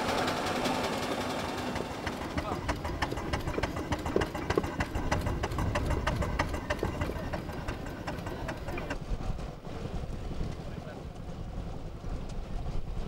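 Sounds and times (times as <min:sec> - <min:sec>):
steam engine exhaust chuffing: 0:00.0 - 0:10.3.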